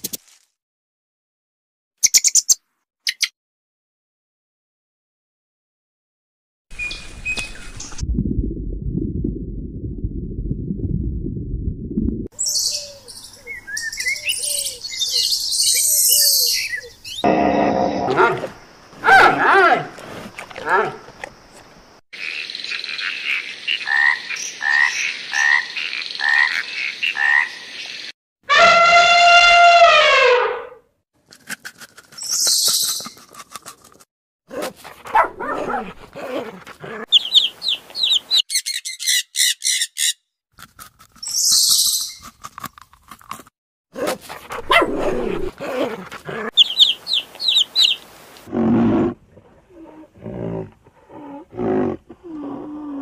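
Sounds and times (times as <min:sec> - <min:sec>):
rapid high chirps and cries: 0:37.1 - 0:40.2, 0:46.6 - 0:48.0.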